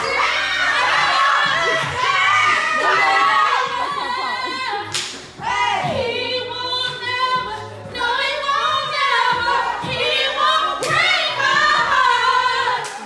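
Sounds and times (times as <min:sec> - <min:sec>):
woman singing into microphone: 0:05.8 - 0:13.0.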